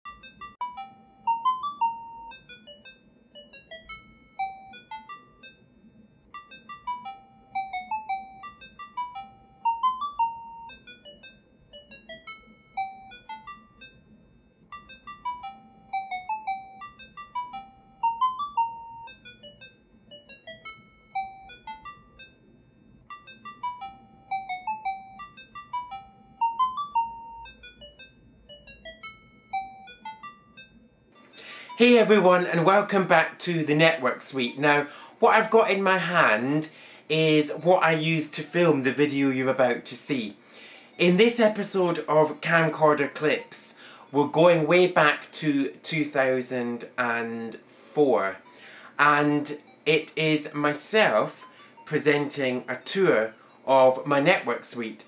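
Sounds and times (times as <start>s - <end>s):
simple melody of high clear notes: 0.1s - 5.6s, 6.3s - 14.0s, 14.7s - 22.4s, 23.1s - 38.9s.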